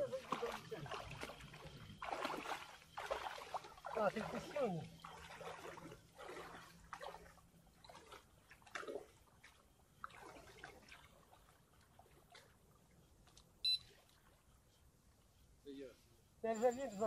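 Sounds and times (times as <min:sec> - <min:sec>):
small water splashes: 0:00.0 - 0:14.6
water trickling: 0:00.0 - 0:14.6.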